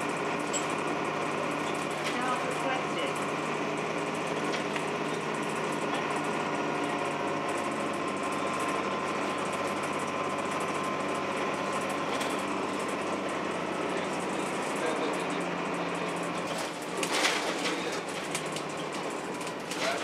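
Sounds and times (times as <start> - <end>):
bus diesel engine running: 0.0 - 20.0.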